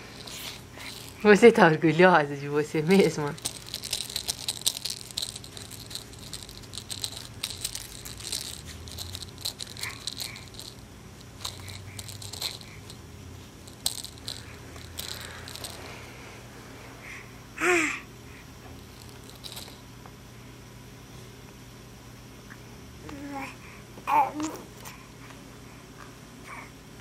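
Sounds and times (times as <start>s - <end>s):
toy rattle shaking: 0.0s - 1.7s, 2.4s - 16.0s, 18.8s - 19.8s.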